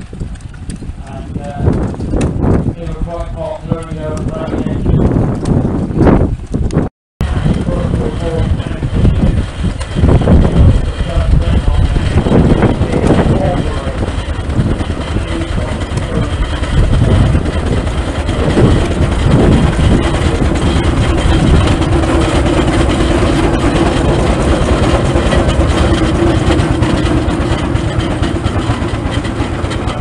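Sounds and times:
steam roller rumbling: 0.0s - 30.0s
steady hum: 7.2s - 30.0s.

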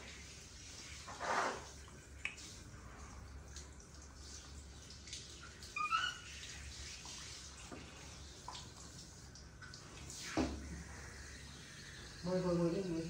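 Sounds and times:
monkey squeaky call: 5.8s - 6.2s.

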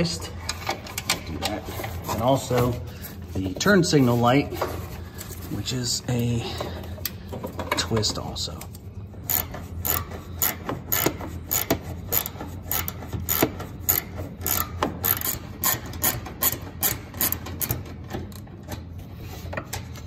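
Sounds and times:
hand ratchet clicking: 9.2s - 18.4s.

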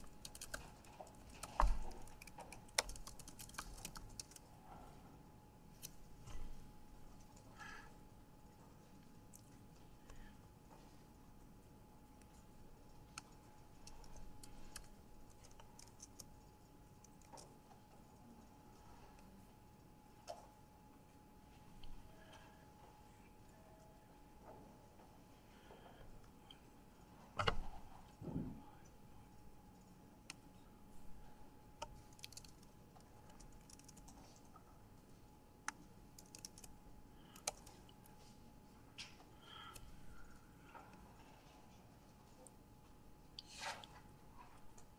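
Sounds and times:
keyboard typing clicks: 0.0s - 4.4s, 33.3s - 34.2s, 35.6s - 37.9s
keyboard typing: 0.0s - 4.5s, 12.3s - 18.0s, 31.8s - 34.6s, 35.6s - 37.9s
faint steady whine: 0.0s - 44.9s
faint steady tone: 4.5s - 27.3s.

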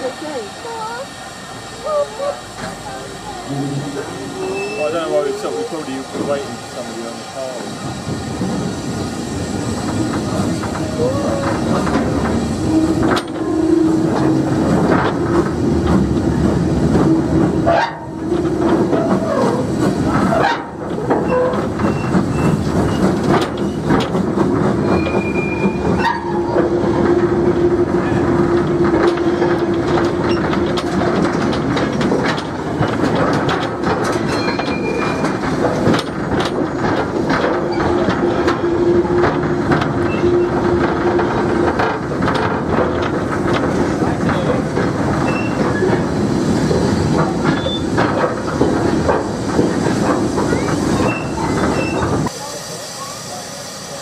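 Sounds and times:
train wagon rattling: 0.0s - 54.0s
wheels knocking over rail joints: 9.8s - 52.3s.

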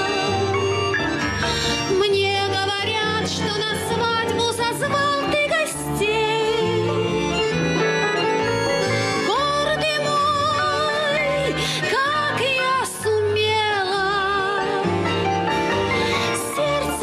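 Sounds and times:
button accordion: 0.0s - 4.4s, 5.0s - 12.3s
woman singing with vibrato: 0.0s - 7.2s, 9.2s - 15.0s, 16.2s - 17.0s.

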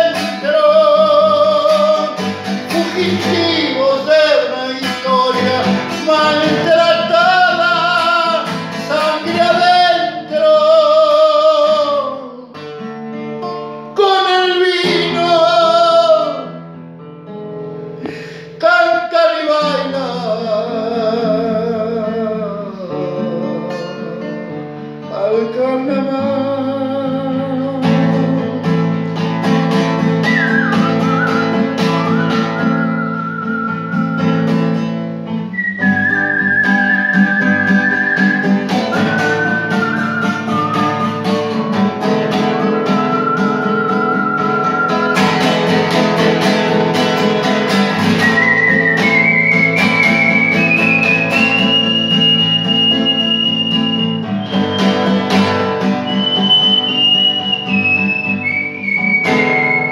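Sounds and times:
classical guitar strumming: 0.0s - 59.9s
whistled melody: 1.0s - 9.6s, 30.0s - 46.5s, 47.7s - 59.9s.

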